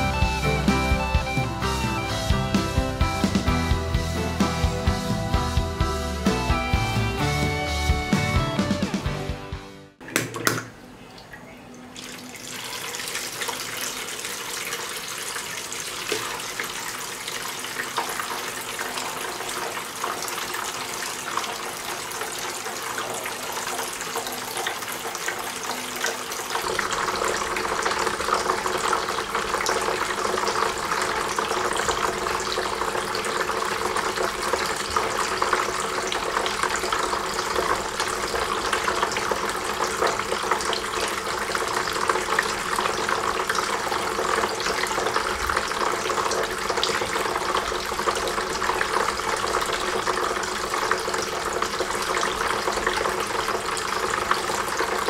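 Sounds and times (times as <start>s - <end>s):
fountain water trickling and splashing: 11.2s - 55.0s.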